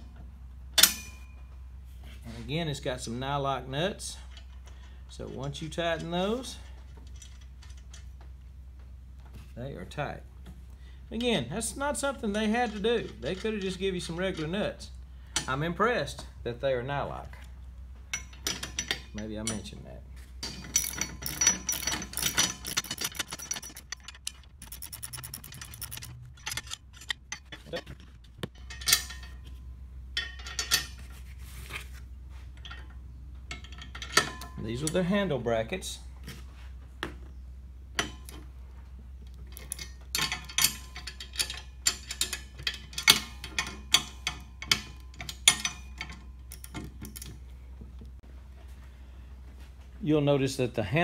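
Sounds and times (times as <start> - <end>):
socket ratchet clicking: 20.8 - 27.5.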